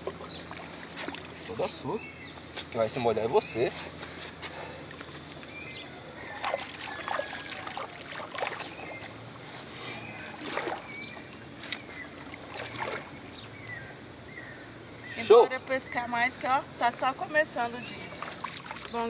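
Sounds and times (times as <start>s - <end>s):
water splashing and sloshing: 0.0s - 1.9s, 5.2s - 13.8s, 17.8s - 19.0s.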